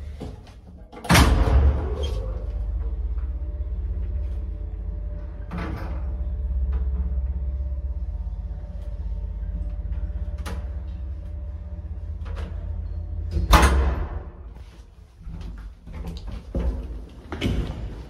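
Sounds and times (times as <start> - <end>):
elevator humming: 0.0 - 18.0
elevator door sounds: 0.7 - 4.6, 12.0 - 14.5
elevator car clunk: 12.1 - 14.4.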